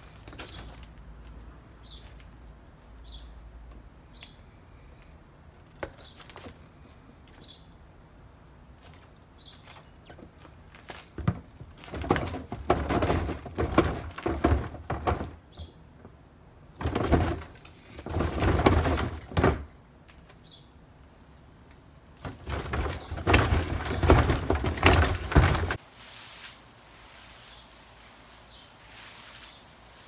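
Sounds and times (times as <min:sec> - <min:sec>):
plastic lid rattling and scraping: 0:11.2 - 0:15.4, 0:16.8 - 0:19.7, 0:22.2 - 0:25.8.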